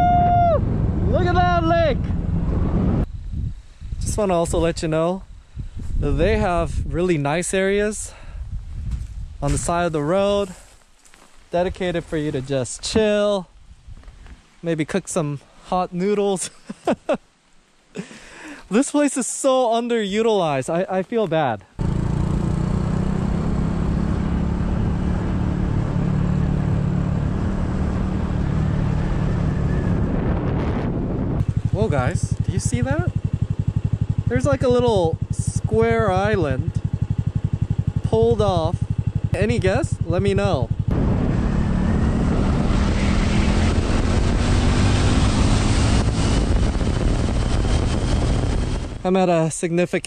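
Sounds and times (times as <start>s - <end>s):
wind noise rushing: 0.0s - 10.5s, 23.3s - 37.7s, 39.4s - 49.2s
motorcycle engine cruising: 21.8s - 49.0s.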